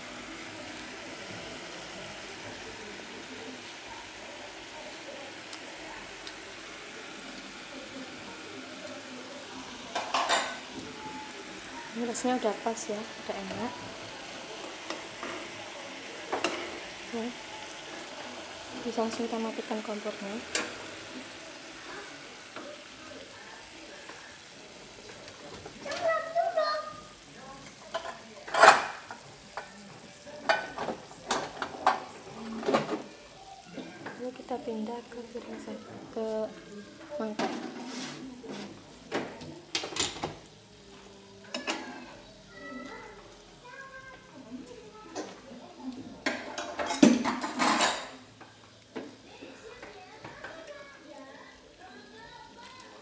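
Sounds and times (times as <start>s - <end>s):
gas burner hissing: 0.0s - 53.0s
soup simmering: 0.0s - 53.0s
metal spatula scraping pan: 37.4s - 38.7s.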